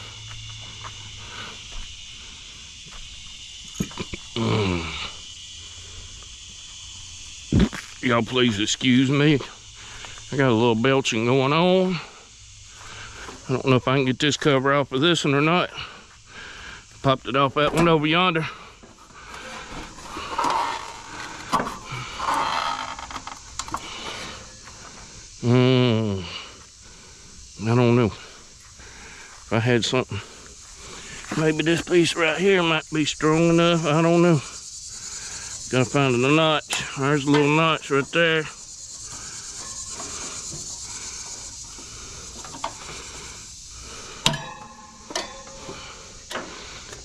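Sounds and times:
insect hiss: 0.0s - 47.0s
plastic scraping and creaking: 18.9s - 24.3s.

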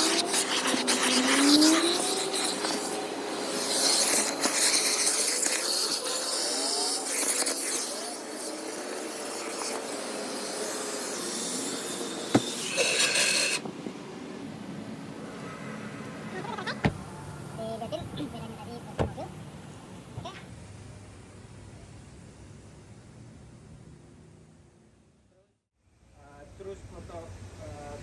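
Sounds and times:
nozzle scraping on fabric: 0.0s - 13.6s
vacuum hose sucking: 0.0s - 13.6s.

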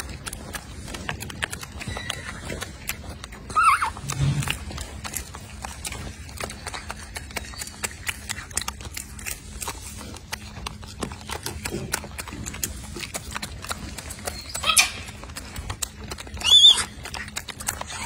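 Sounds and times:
monkey chewing food: 0.0s - 18.0s
high-pitched monkey squeal: 1.8s - 2.4s, 3.5s - 4.2s, 14.2s - 15.1s, 16.4s - 17.1s.

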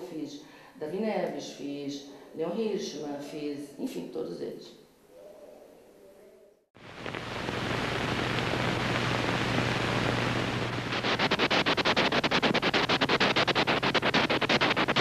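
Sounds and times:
projector hiss and hum: 3.6s - 15.0s.

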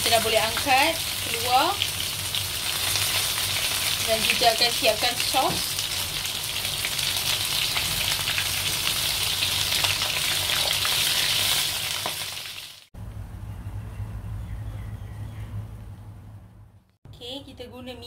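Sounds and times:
fish sizzling in hot oil: 0.0s - 12.9s.

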